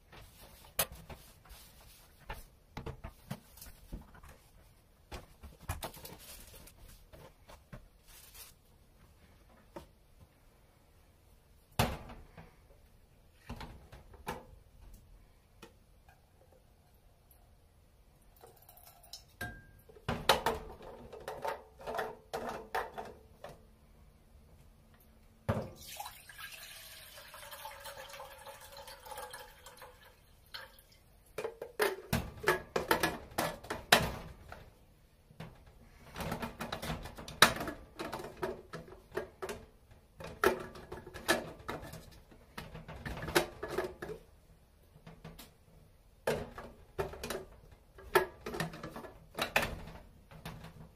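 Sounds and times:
liquid pouring into pitcher: 25.7s - 31.0s.

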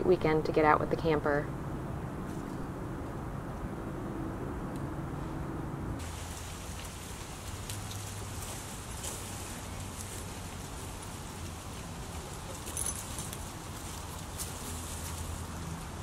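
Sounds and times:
low steady hum: 0.0s - 16.0s
dry leaves rustling: 6.0s - 16.0s.

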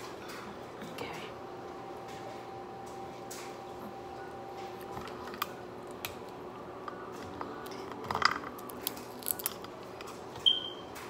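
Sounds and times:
faint steady hum: 0.0s - 11.0s
shellfish shells cracking: 7.6s - 10.2s.

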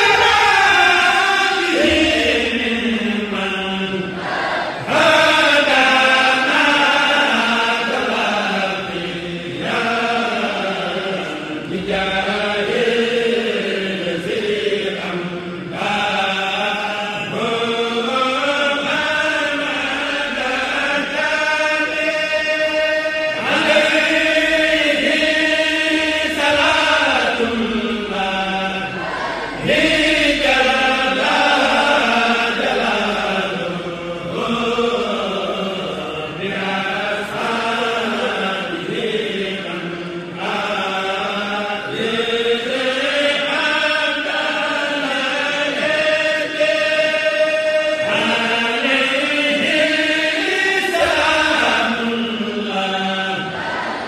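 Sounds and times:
voices chanting devotional poem: 0.0s - 54.0s.

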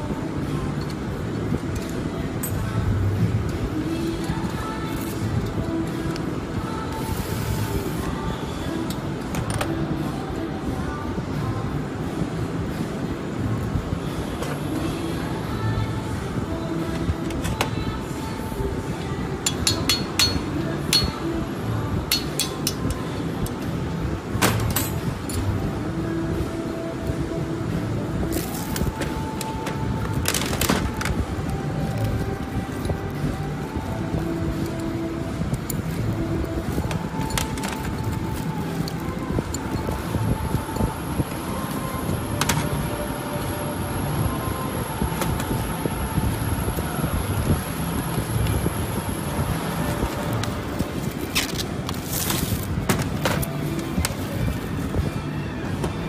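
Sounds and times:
metallic clinks of steel parts: 22.1s - 23.0s
faint high whine: 31.2s - 51.2s.

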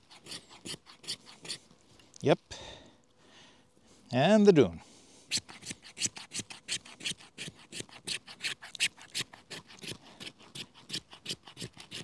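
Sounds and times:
knife spine scraping wood stick: 0.0s - 1.7s, 5.3s - 12.0s.

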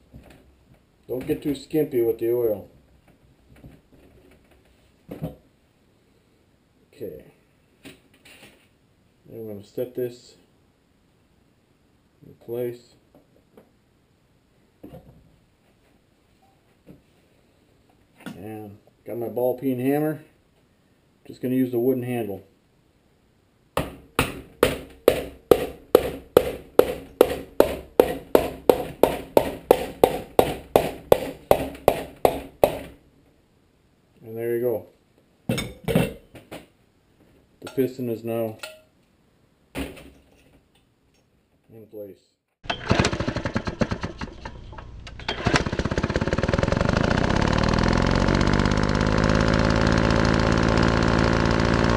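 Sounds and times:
hammer handle tapping metal: 23.8s - 32.9s
engine starting and running: 42.6s - 51.9s.

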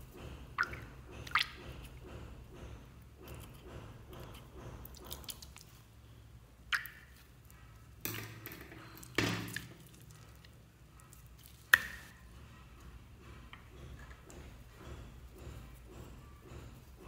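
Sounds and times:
slime squelching: 4.2s - 5.9s, 9.0s - 12.1s.

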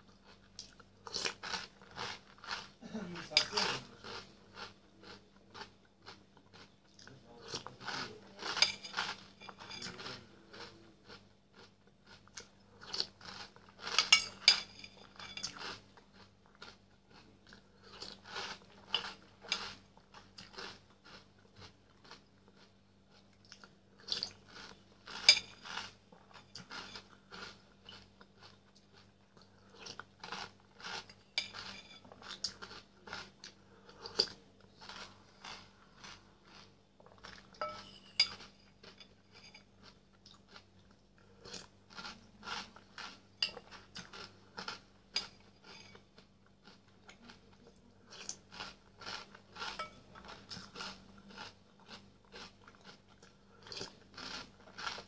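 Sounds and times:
crunching and chewing cereal: 0.0s - 55.0s
faint low hum: 0.0s - 55.0s.

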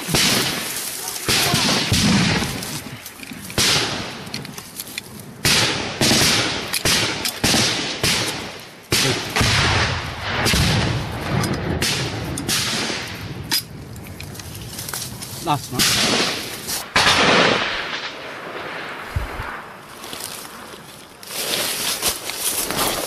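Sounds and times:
gunshots echoing: 0.0s - 4.3s, 5.4s - 13.5s, 15.7s - 19.7s.

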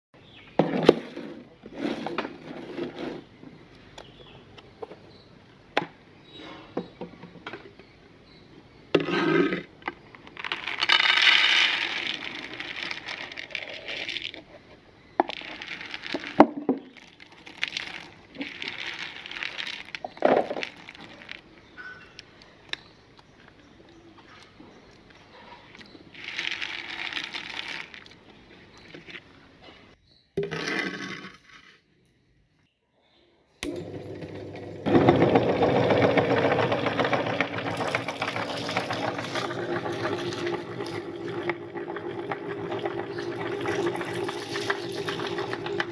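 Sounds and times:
nuts poured onto a plate: 10.2s - 14.4s, 15.2s - 21.5s, 26.2s - 28.2s, 35.0s - 41.4s.

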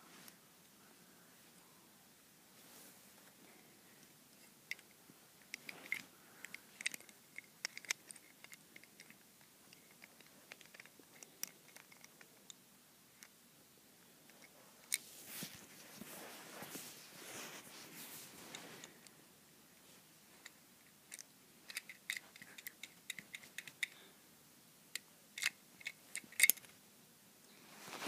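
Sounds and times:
toy safe mechanism clicking: 5.5s - 12.2s, 20.4s - 24.0s, 24.9s - 26.7s.

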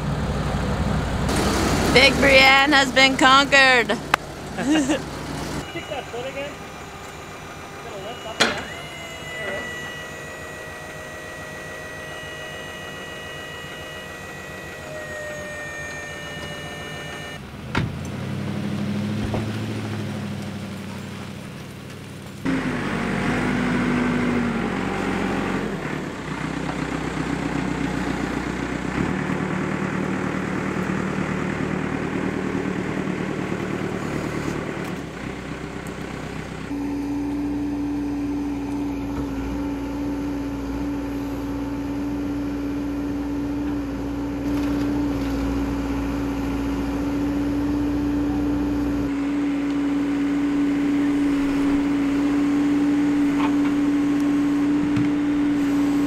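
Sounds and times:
strong steady hum: 0.0s - 18.2s, 22.4s - 56.0s
backhoe diesel engine running: 0.0s - 56.0s.

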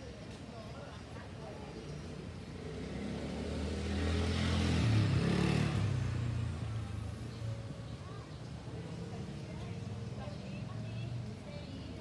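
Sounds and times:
vehicle engine passing by: 2.5s - 7.4s.

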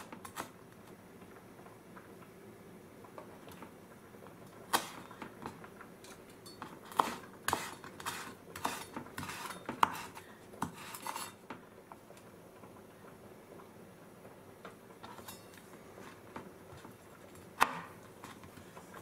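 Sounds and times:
knife chopping on wooden board: 6.9s - 11.2s.

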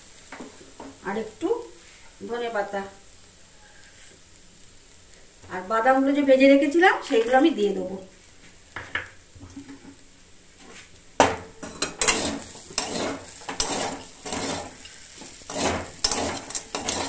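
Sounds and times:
metal spatula scraping a pan: 11.6s - 17.0s.

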